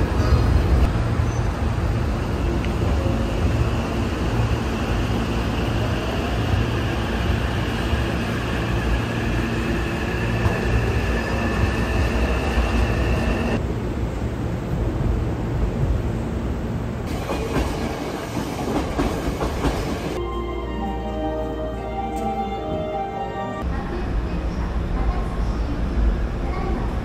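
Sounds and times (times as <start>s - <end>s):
electric train rumbling on rails: 0.0s - 27.0s.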